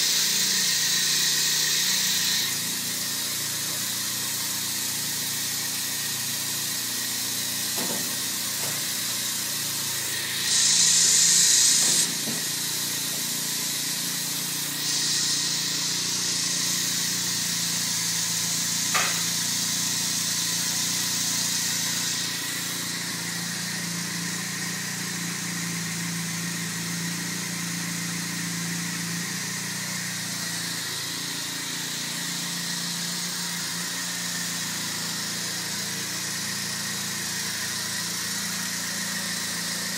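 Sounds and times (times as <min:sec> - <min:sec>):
machine humming: 0:00.0 - 0:26.8
compressed air hissing: 0:00.0 - 0:39.9.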